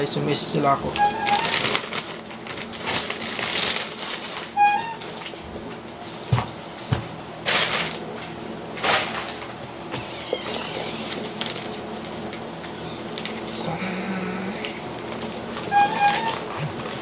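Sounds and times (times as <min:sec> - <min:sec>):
plastic wrapping crinkling: 0:00.8 - 0:05.4, 0:08.8 - 0:12.4, 0:13.0 - 0:13.6, 0:14.6 - 0:17.0
high squeak: 0:01.0 - 0:01.6, 0:04.6 - 0:05.1, 0:15.7 - 0:16.5.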